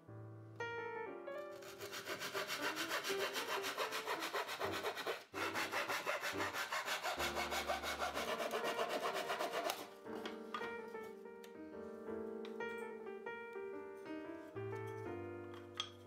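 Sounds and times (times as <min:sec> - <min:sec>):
hand saw rasping through wood: 0:01.6 - 0:09.9.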